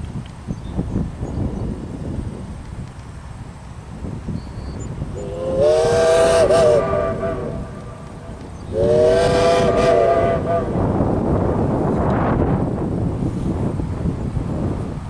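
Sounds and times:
passing train rumble: 0.8 - 15.0
steam locomotive chime whistle: 5.2 - 10.9.

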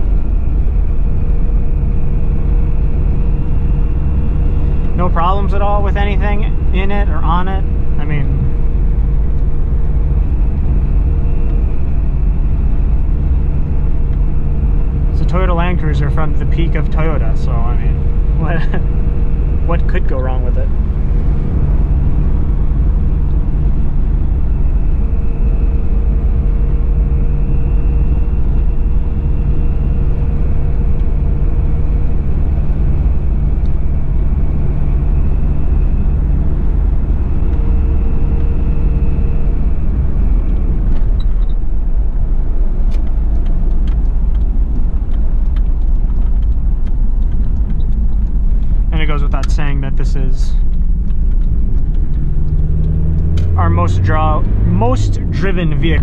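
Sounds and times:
diesel engine cruising in cabin: 0.0 - 56.0
road noise: 0.0 - 56.0.

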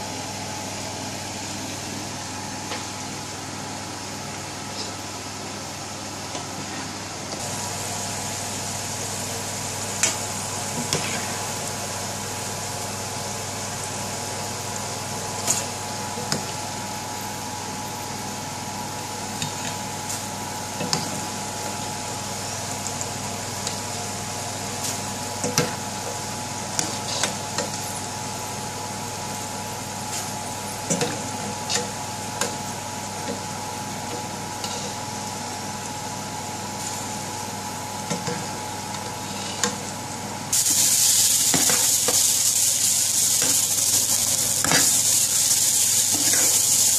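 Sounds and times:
chips sizzling in hot oil: 7.4 - 17.4, 40.5 - 46.9.

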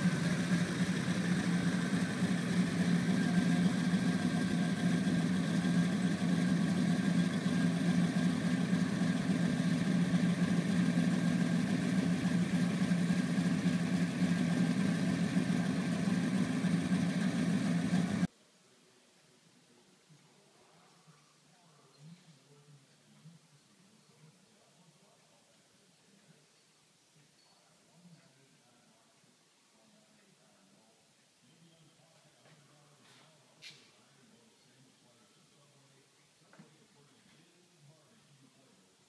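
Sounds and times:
car engine idling: 0.0 - 18.3.

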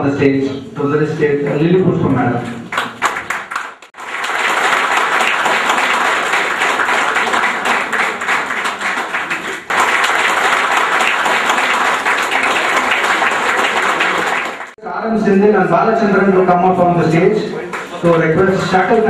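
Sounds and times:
audience applauding: 2.6 - 14.8.

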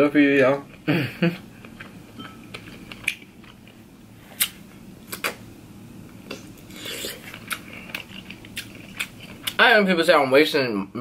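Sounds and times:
chewing shrimp: 0.6 - 3.8, 6.3 - 9.6.

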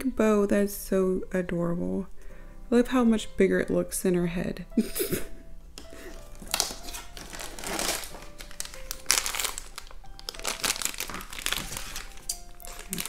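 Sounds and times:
paper packaging crinkling: 5.8 - 13.0.

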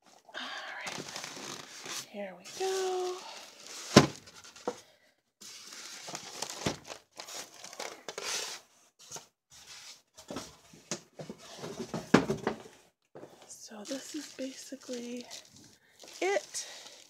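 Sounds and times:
plastic bag crinkling: 13.6 - 17.0.

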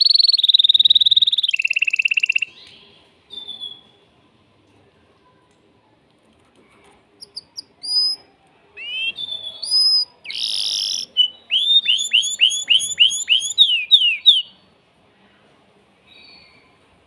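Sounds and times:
canary singing: 0.0 - 3.9, 7.2 - 14.7.

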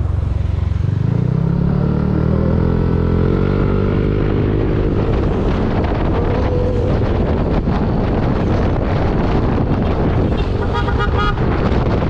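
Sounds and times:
wind buffeting microphone: 2.6 - 12.0.

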